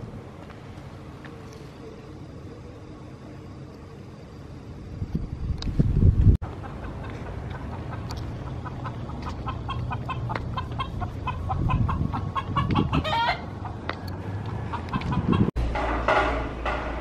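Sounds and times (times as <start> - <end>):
chicken clucking: 6.4 - 13.8, 14.4 - 15.5
chicken wavering call: 6.6 - 13.5.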